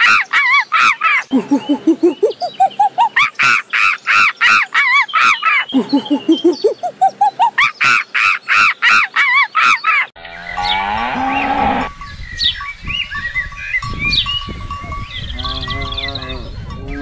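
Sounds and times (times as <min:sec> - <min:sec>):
birds chirping: 0:00.0 - 0:17.0
cow mooing: 0:10.2 - 0:11.9, 0:15.3 - 0:17.0
noisy pasture background: 0:10.2 - 0:12.0, 0:14.9 - 0:17.0
bell tinkling: 0:13.4 - 0:17.0.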